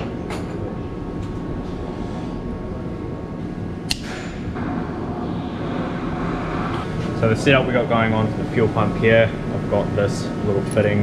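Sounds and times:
low rumble: 1.0s - 11.0s
sharp click: 3.9s - 4.3s.

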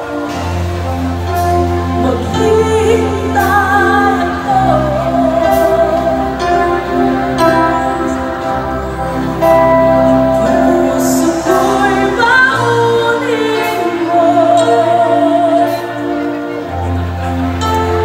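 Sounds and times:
drums: 0.0s - 18.0s
electric guitar: 0.0s - 18.0s
keyboards: 0.0s - 18.0s
women singing long notes: 10.0s - 16.2s.

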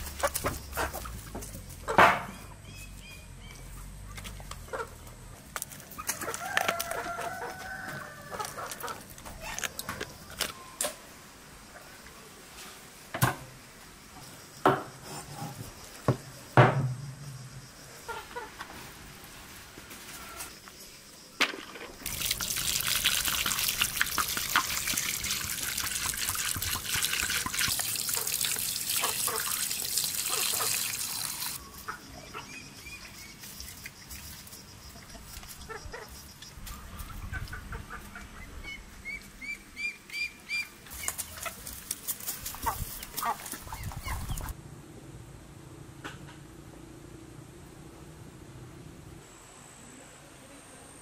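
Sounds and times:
water pouring into metal basin: 22.0s - 31.6s
wet splashing of chickens in water: 22.0s - 31.6s.

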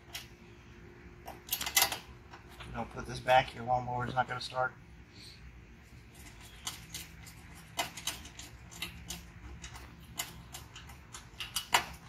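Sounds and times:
hand tools clicking and tapping: 6.2s - 12.0s.

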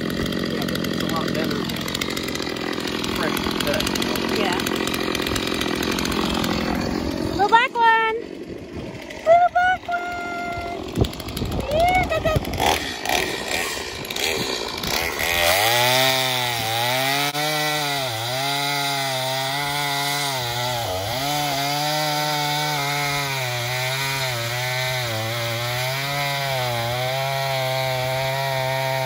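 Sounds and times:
chainsaw cutting through log: 0.0s - 29.0s.

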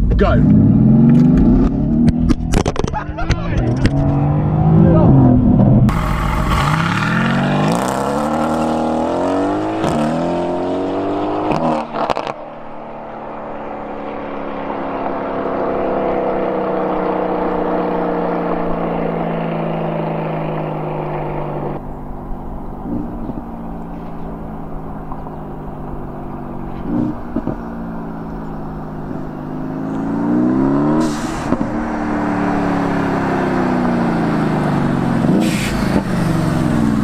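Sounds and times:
exhaust cracks: 0.0s - 10.2s, 18.6s - 37.0s
car engine accelerating hard: 0.0s - 37.0s.

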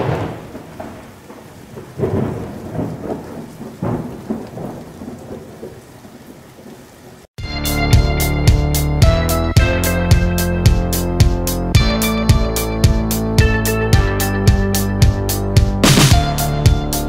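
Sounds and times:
thunder claps and rumbles: 0.0s - 6.8s
steady rain: 0.0s - 7.4s
music: 7.4s - 17.0s.

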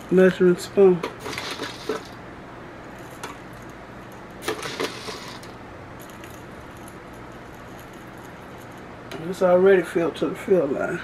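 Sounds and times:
peppercorns clattering: 1.0s - 2.2s, 2.9s - 9.4s.

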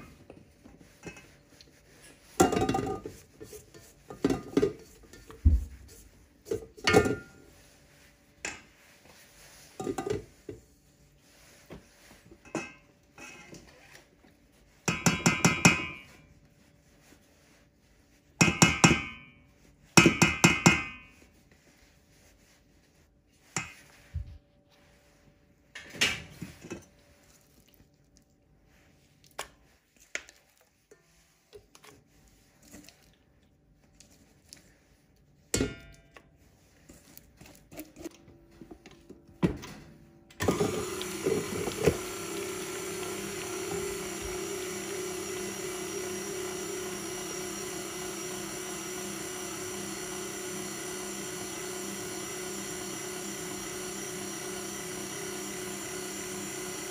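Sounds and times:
light knocks and scrapes: 0.1s - 14.4s
metal clanks on mixer bowl: 2.4s - 3.1s, 6.8s - 7.4s, 14.9s - 16.1s, 18.4s - 19.2s
stand mixer running: 40.4s - 56.9s.

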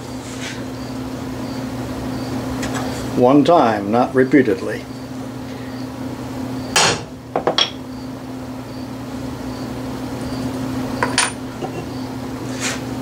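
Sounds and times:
steady low hum: 0.0s - 13.0s
hammer striking metal punch: 6.8s - 7.8s.

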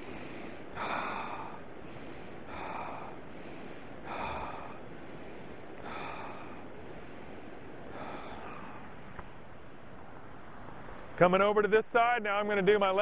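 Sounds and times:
man breathing deeply: 0.0s - 9.4s.

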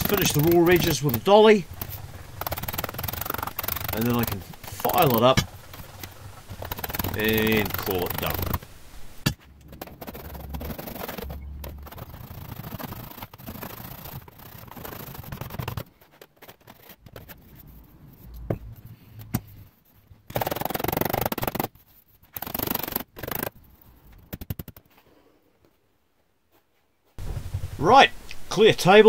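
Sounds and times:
sharp clicks: 0.0s - 15.8s.

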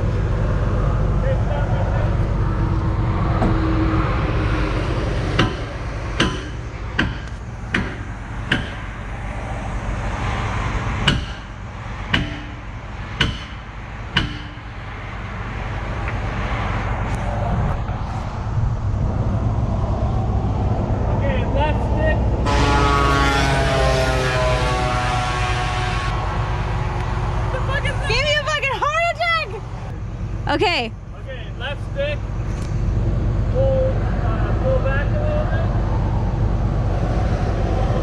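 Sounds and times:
diesel engine idling: 0.0s - 37.8s
hammer striking steel: 5.3s - 9.0s, 11.0s - 14.9s.

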